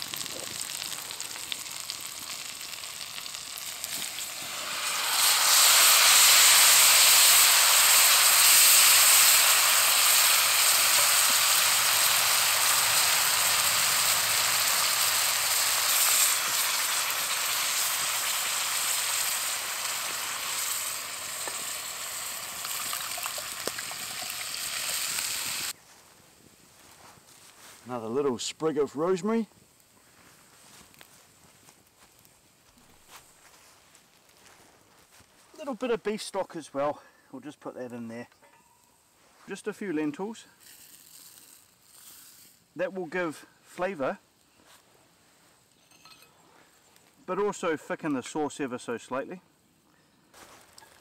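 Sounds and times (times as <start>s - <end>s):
meat and vegetables frying: 0.0s - 25.8s, 40.6s - 42.7s
liquid poured into hot pot: 0.1s - 25.7s.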